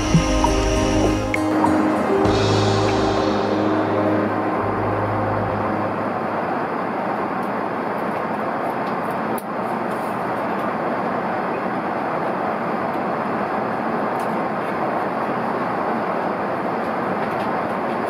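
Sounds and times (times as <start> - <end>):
background music: 0.0 - 6.7
airliner cabin noise: 0.0 - 18.0.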